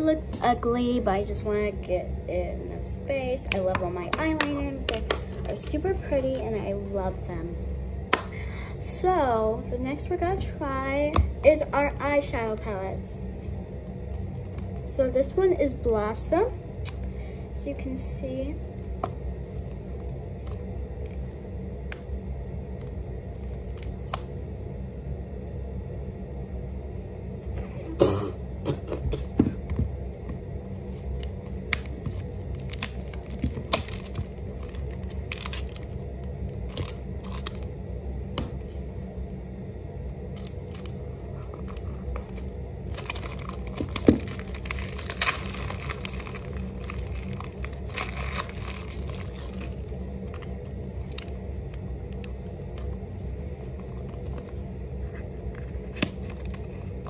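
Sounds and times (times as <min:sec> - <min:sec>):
steady low hum: 0:00.0 - 0:57.0
packaging crinkling and tearing: 0:30.8 - 0:37.7, 0:40.3 - 0:51.4
packaging clicks and scrapes: 0:40.4 - 0:50.5.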